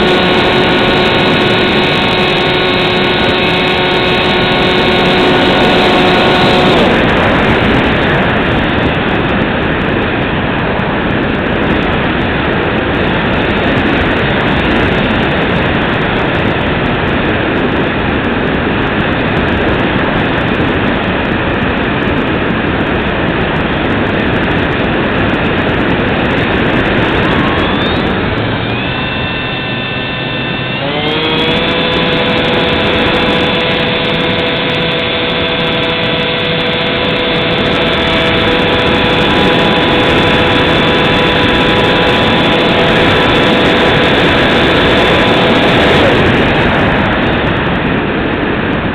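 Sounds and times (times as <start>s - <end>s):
electric motor whining: 0.0s - 9.4s, 25.5s - 47.8s
rush of airflow: 0.0s - 48.9s.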